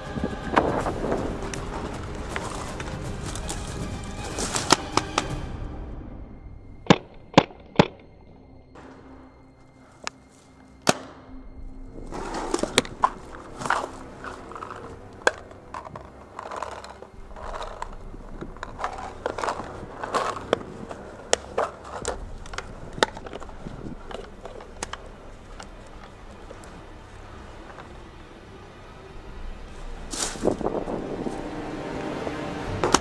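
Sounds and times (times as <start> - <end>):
crunching of dry leaves and twigs: 0.0 - 5.5, 6.9 - 33.0
sharp snaps and knocks: 1.5 - 5.4, 6.9 - 8.2.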